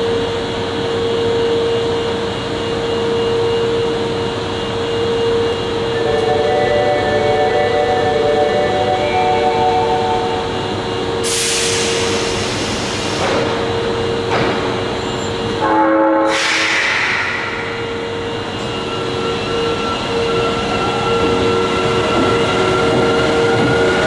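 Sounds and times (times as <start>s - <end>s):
train horn blast: 6.0s - 10.6s, 15.6s - 18.2s
air brake hiss: 11.2s - 13.6s, 16.3s - 18.0s.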